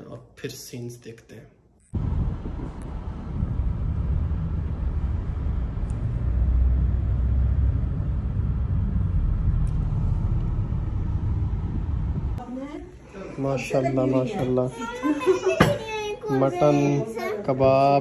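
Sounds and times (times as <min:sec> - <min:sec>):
car cabin road and engine noise: 0:02.0 - 0:12.4.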